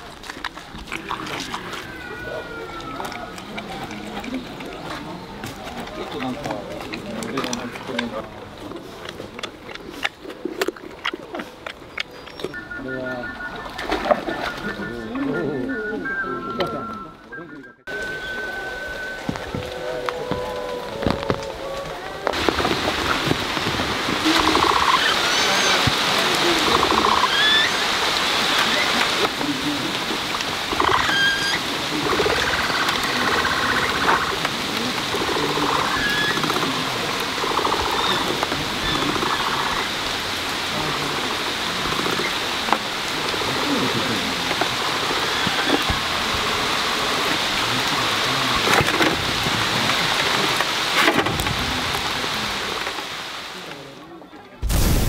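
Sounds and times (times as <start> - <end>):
rain falling on concrete: 0.0 - 15.3, 17.9 - 55.0.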